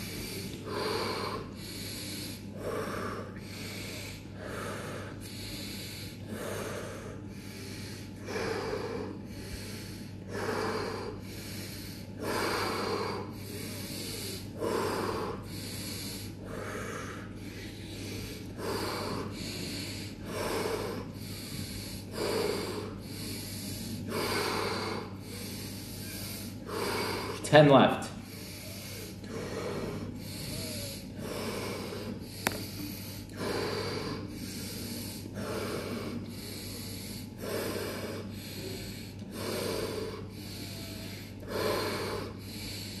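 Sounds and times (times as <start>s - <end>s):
man breathing forcefully: 0.0s - 43.0s.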